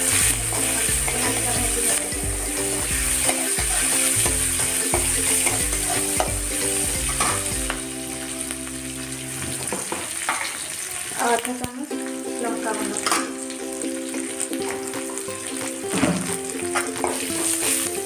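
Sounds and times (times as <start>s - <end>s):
spices sizzling in oil: 0.0s - 18.0s.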